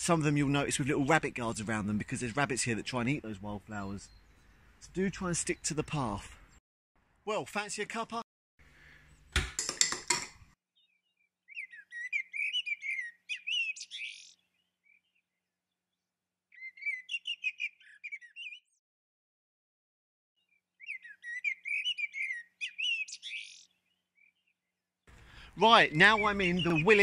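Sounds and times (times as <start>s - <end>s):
songbird chirping and trilling: 0.1s - 6.6s, 10.7s - 18.8s, 20.4s - 27.0s.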